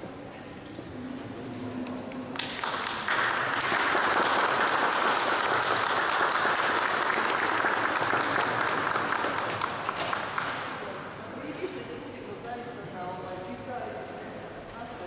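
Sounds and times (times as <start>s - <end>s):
audience applauding: 2.3s - 10.8s.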